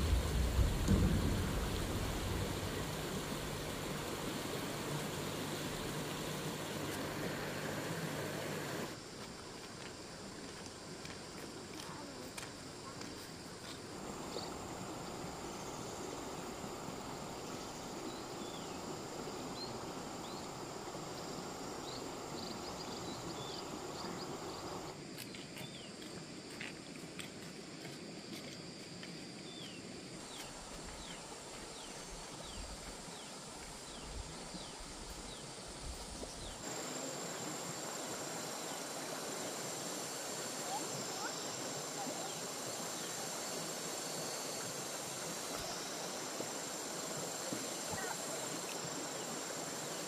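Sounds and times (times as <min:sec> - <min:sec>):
steady rushing noise: 0:00.0 - 0:09.0, 0:14.0 - 0:25.0
insects: 0:00.0 - 0:50.0.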